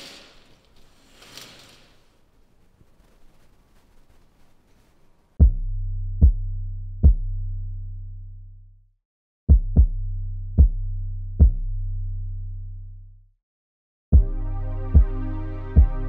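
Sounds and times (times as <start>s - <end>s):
deep kick drum hits: 5.4s - 6.4s, 9.5s - 10.0s, 14.2s - 14.4s
low held bass: 5.4s - 8.8s, 14.2s - 16.0s.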